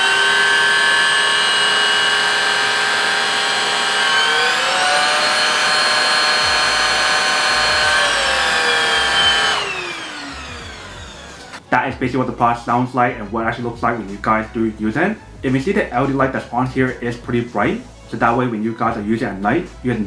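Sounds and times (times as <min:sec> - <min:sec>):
vacuum cleaner motor whine: 0:00.0 - 0:11.7.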